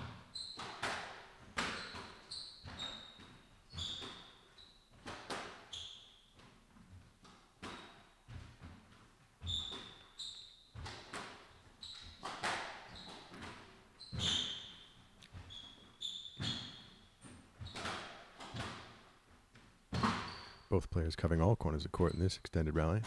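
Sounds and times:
squash ball hit by rackets: 0.0s - 5.7s, 10.7s - 15.5s, 16.4s - 19.1s, 19.9s - 20.4s
shoes squeaking on wooden floor: 0.0s - 20.8s
ball smacking off walls: 17.2s - 20.5s.

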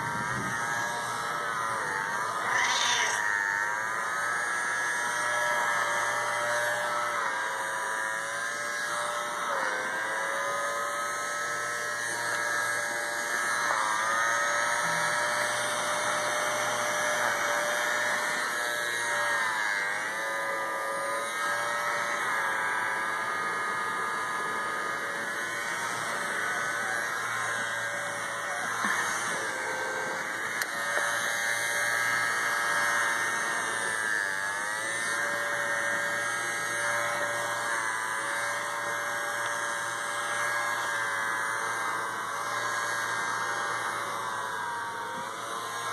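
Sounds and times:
small vacuum motor whining: 0.0s - 45.9s.

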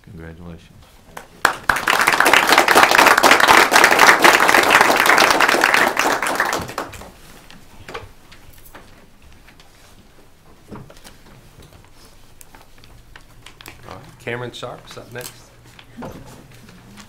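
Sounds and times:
audience applauding: 1.2s - 7.2s.

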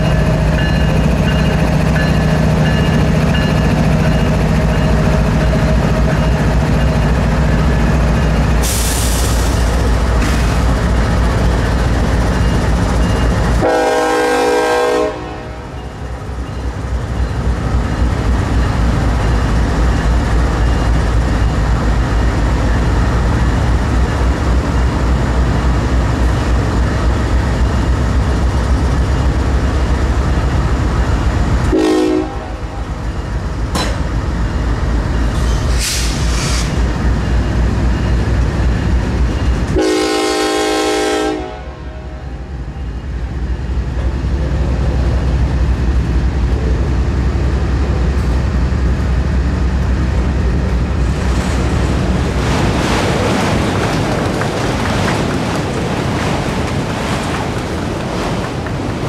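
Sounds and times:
train rumbling: 0.0s - 59.0s
locomotive air horn: 13.6s - 15.6s, 31.7s - 32.6s, 39.8s - 42.2s.

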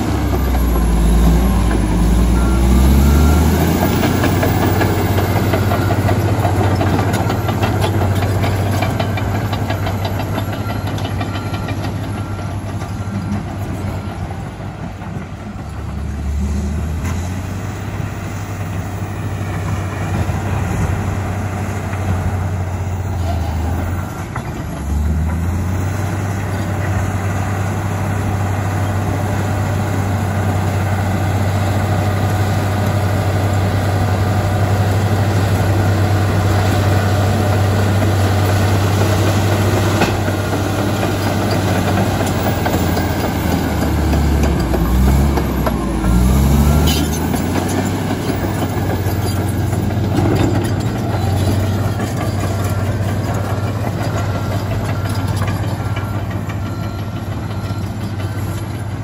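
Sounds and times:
bulldozer diesel engine: 0.0s - 59.0s.

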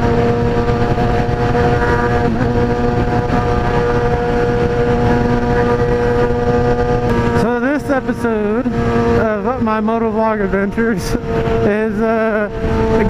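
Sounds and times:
wind rush: 0.0s - 9.1s
motorcycle engine cruising: 0.0s - 13.0s.

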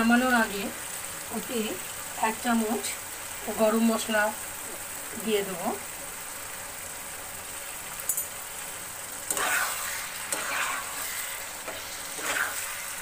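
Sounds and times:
curry sizzling in oil: 0.0s - 13.0s
metal spatula scraping pan: 9.3s - 13.0s.

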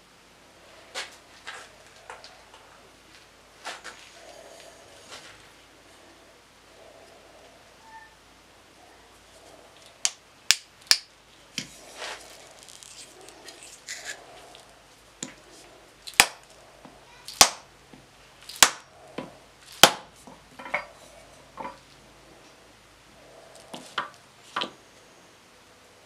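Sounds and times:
handling and scraping: 0.7s - 8.2s, 11.5s - 15.8s, 20.1s - 22.6s.

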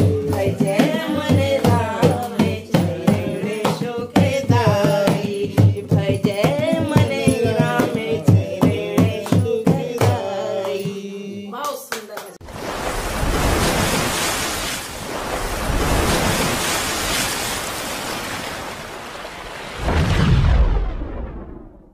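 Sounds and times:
hand drum beating rhythm: 0.0s - 11.0s
women singing devotional song: 0.0s - 12.3s
hand-clapping: 9.0s - 11.0s, 11.6s - 12.4s.

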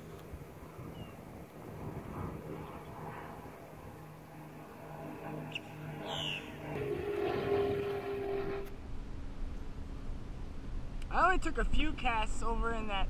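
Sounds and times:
low mechanical hum: 0.0s - 12.0s
bird chirp: 0.8s - 1.2s, 5.4s - 6.7s.

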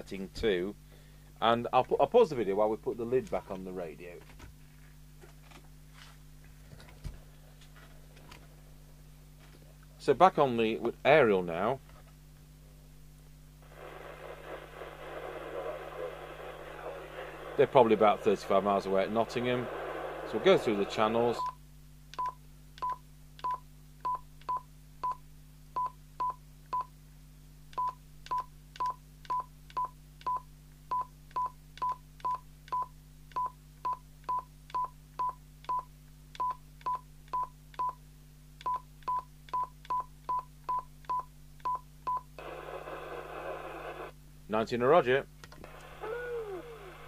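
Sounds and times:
radio speaker hiss: 13.6s - 21.4s, 42.4s - 44.2s, 45.6s - 47.0s.

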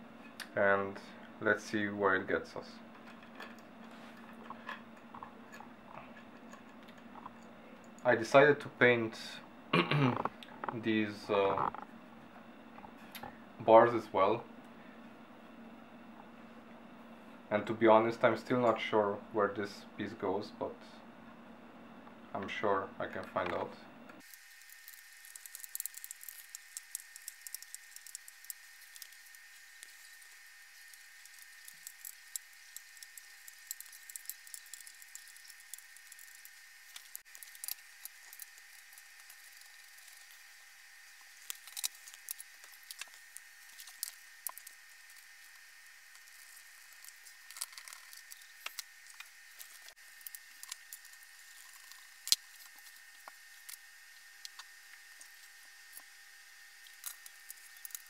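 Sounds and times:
screwdriver clicks and metal rattles: 41.4s - 43.1s.

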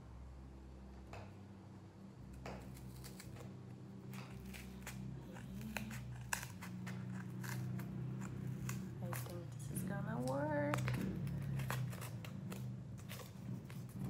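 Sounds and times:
low steady hum: 0.0s - 14.0s
scissors snipping cardboard: 2.4s - 3.5s, 4.1s - 14.0s.

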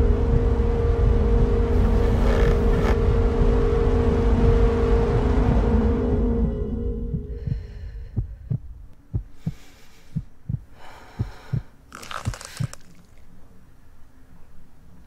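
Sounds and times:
heartbeat double thump: 0.2s - 5.7s, 7.0s - 11.7s
breathy gasps: 9.4s - 11.8s.

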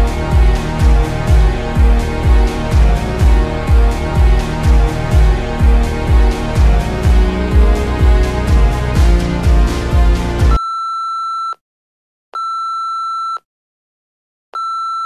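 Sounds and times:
music with low beat: 0.0s - 10.6s.

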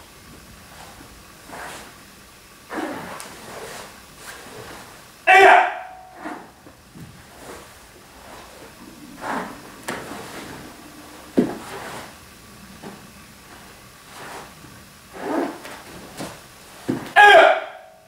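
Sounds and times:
uniform swishes and rustles: 0.7s - 2.0s, 2.7s - 5.0s, 6.1s - 17.2s
foot thudding on floor: 11.3s - 12.2s, 15.5s - 17.2s.

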